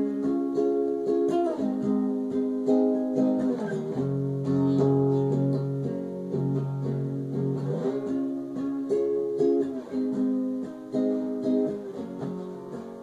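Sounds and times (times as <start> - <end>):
guitar picking slow chords: 0.0 - 13.0.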